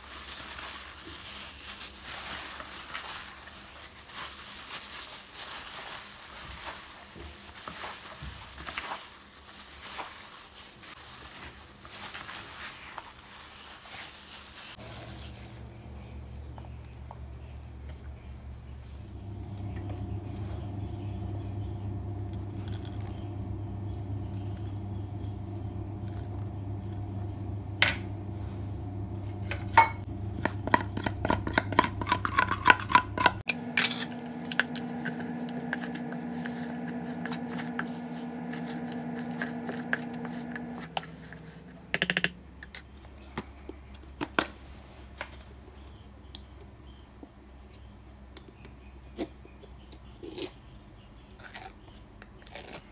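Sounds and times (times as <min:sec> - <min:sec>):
steady hum: 0:14.8 - 0:42.6
utensils clinking and scraping dishes: 0:29.4 - 0:42.9.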